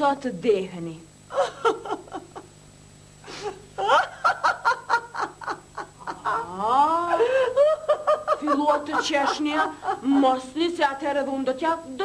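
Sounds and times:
woman laughing: 1.3s - 2.5s, 3.3s - 10.6s.

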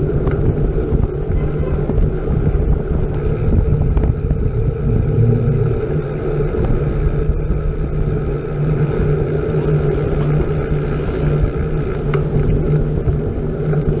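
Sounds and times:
road and wind rush: 0.0s - 14.0s
vehicle engine running: 0.0s - 14.0s.

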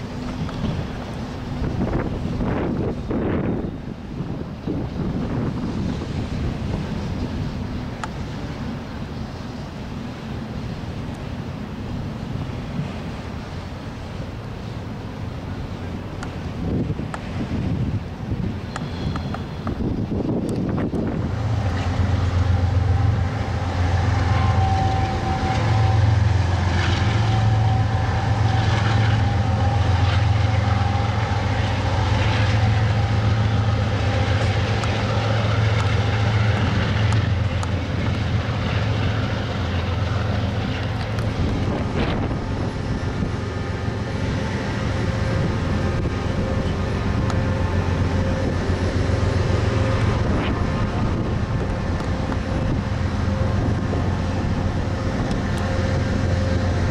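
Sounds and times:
train rumbling past: 0.0s - 56.9s
wheels clanking on rails: 0.0s - 56.9s.

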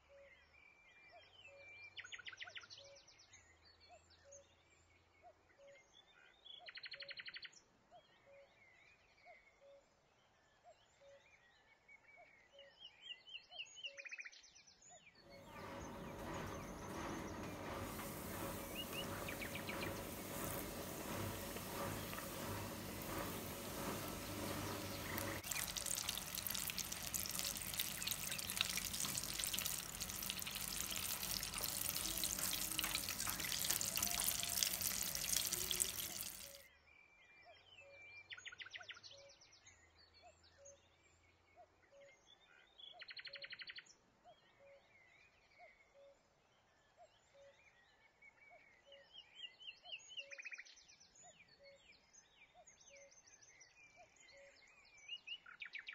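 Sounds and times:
deep-frying sizzle and crackling: 15.3s - 36.6s.

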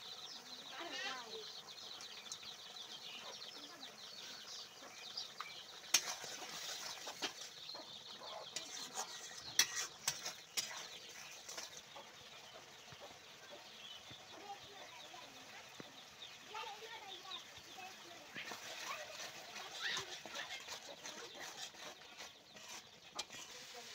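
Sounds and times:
faint steady hiss: 0.0s - 21.5s, 22.1s - 23.9s
metal spatula scraping pot: 4.1s - 12.2s, 18.2s - 23.9s.

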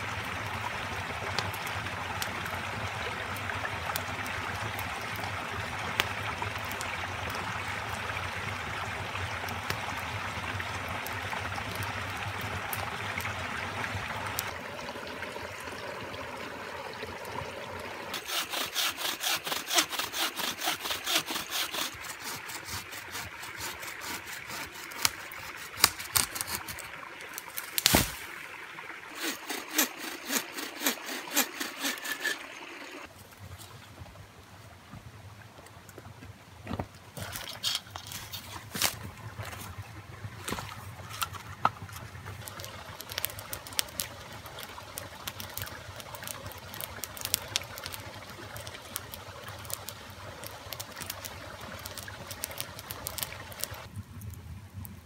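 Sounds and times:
bow saw cutting wood: 18.1s - 26.9s, 29.1s - 33.1s.

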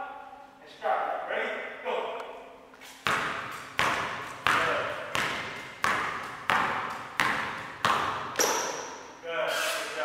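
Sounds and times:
basketball bouncing on hardwood floor: 3.0s - 8.9s.

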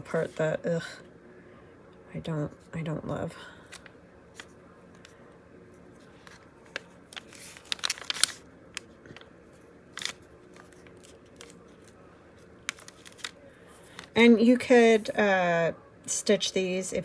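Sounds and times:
paper crinkling and rustling: 6.0s - 14.3s.

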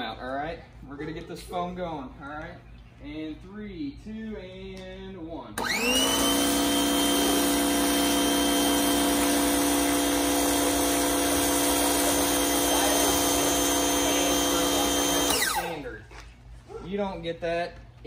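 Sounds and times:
pressure washer motor whine: 5.6s - 16.0s.

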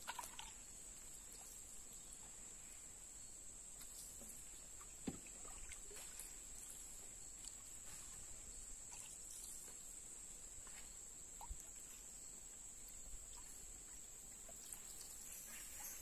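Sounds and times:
paddle splashes: 0.0s - 2.4s, 3.8s - 10.0s, 13.0s - 16.0s
knocks against canoe hull: 5.0s - 5.4s.

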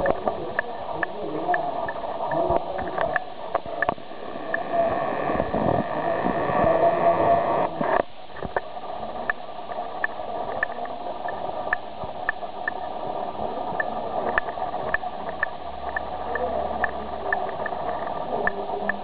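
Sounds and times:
voice-like sound: 0.0s - 8.0s, 16.1s - 19.0s
room noise: 0.0s - 19.0s.

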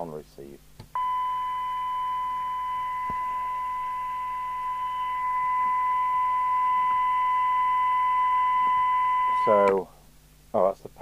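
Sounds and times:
high-pitched test tone: 1.0s - 9.6s.

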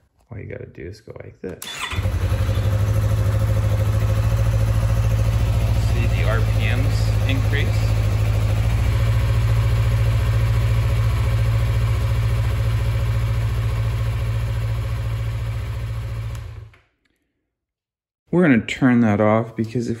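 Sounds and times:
motorcycle engine idling: 1.8s - 16.7s.

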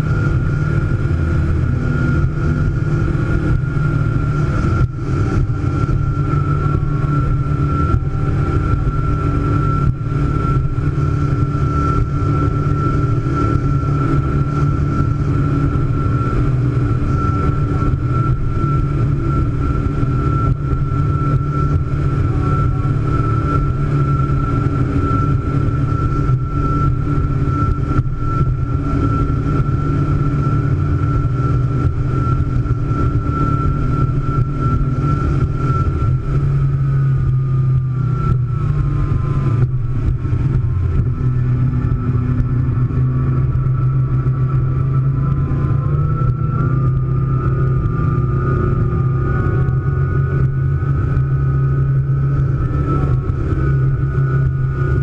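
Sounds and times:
high engine whine: 0.0s - 55.0s
speedboat engine drone: 0.0s - 55.0s.

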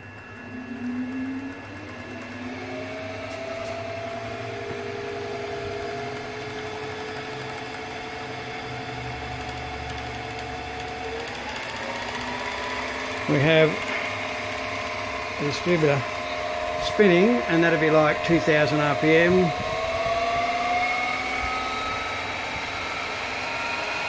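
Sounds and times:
milling machine spindle whine: 0.0s - 24.0s.

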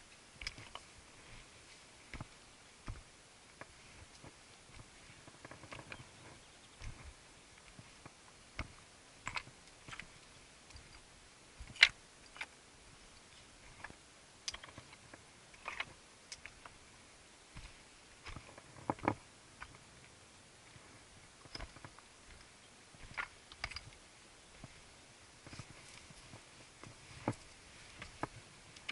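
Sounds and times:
footsteps on loose rock: 2.1s - 12.6s, 17.5s - 19.8s, 24.6s - 28.9s.

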